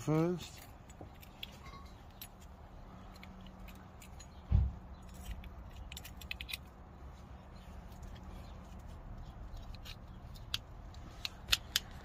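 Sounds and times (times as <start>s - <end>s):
dull low thump: 4.4s - 4.8s.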